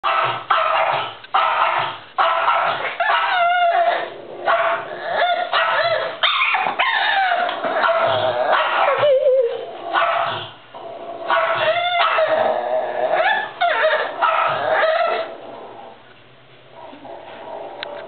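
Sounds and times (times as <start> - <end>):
dog crying and yelping: 0.1 - 10.5, 11.3 - 15.3.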